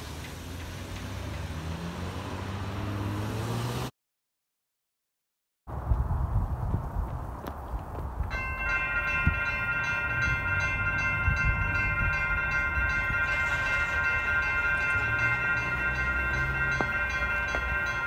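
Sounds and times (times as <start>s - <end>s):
railroad crossing bell ringing: 8.3s - 18.0s.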